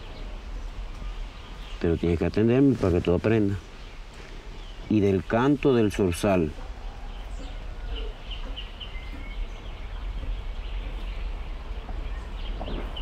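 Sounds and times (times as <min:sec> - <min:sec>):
steady low rumble: 0:06.5 - 0:13.0.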